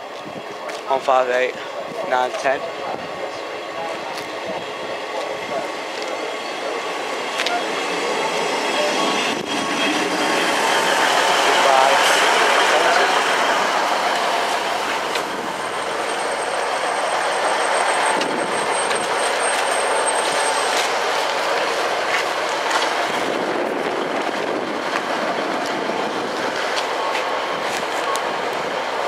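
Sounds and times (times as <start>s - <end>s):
train wheels on track: 0.0s - 29.0s
thin high whine: 3.0s - 22.4s.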